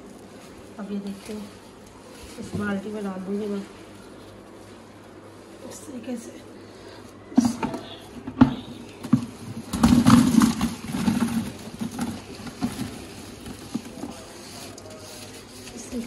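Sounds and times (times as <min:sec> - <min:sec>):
mango pieces dropping into plastic bucket: 0:07.4 - 0:14.3.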